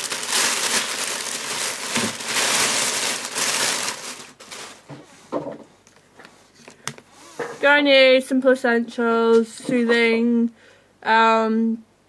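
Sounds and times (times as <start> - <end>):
plastic packaging crinkling: 0.0 - 5.0.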